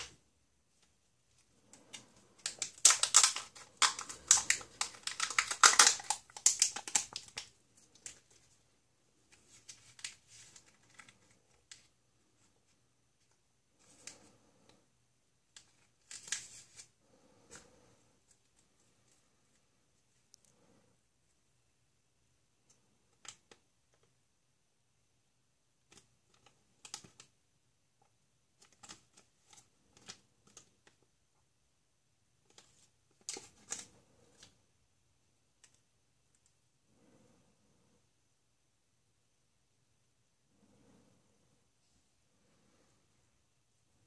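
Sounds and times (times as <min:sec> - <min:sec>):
plastic crinkling and clicking: 0:00.8 - 0:08.6, 0:25.9 - 0:27.4, 0:28.0 - 0:31.1.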